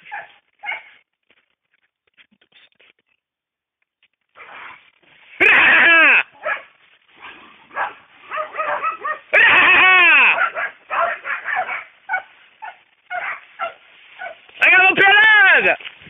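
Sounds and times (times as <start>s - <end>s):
dogs barking and yelping: 0.0s - 1.0s, 4.4s - 14.5s
dogs baying: 6.4s - 14.5s.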